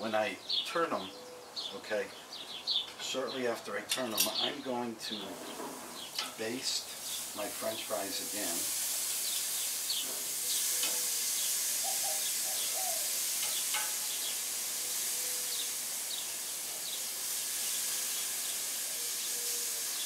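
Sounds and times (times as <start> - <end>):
birds chirping: 0.0 - 20.0
meat sizzling on a grill: 5.2 - 20.0.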